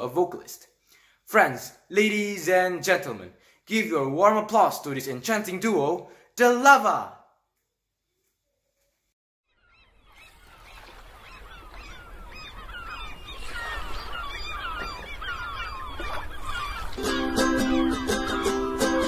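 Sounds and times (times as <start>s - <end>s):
birds calling: 9.5s - 19.0s
ukulele playing chords: 17.0s - 19.0s.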